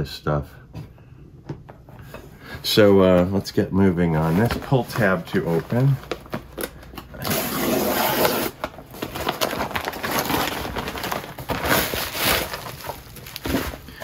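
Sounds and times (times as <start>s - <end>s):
paper and bubble wrap rustling: 2.7s - 14.0s
paper mailer tearing: 4.2s - 14.0s.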